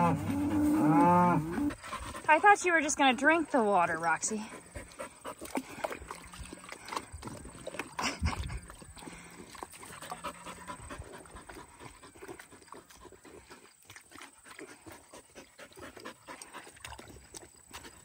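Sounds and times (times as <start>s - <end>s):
dog panting: 1.6s - 2.9s, 4.2s - 5.9s, 8.0s - 18.0s.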